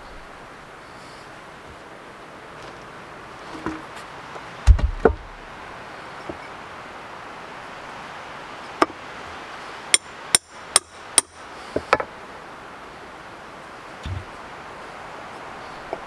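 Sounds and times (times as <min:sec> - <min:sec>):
tool knocking on wood: 0:04.7 - 0:05.3.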